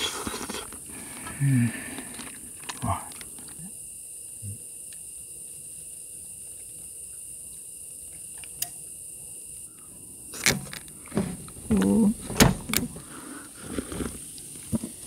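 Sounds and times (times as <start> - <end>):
high-pitched insect chorus: 0.0 - 15.0
sharp knocks and clatter: 10.4 - 12.9.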